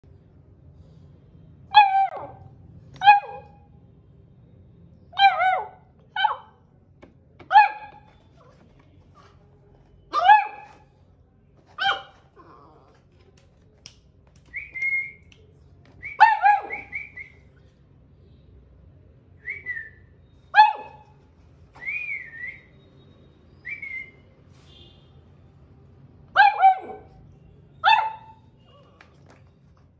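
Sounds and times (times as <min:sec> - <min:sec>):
puppy whining and whimpering: 0:12.4 - 0:13.1.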